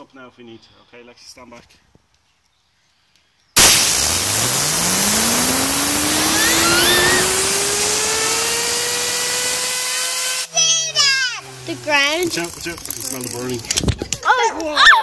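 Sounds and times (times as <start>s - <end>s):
compressed air blow gun hissing: 3.6s - 10.5s
fidget spinner whirring: 4.0s - 14.2s.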